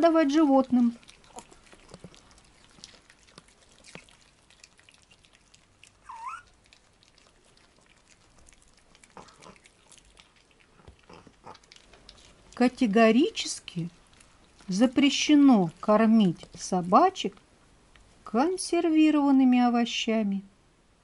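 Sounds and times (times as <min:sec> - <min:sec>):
dogs chewing: 0:00.0 - 0:16.7
small dog whining: 0:06.0 - 0:06.8.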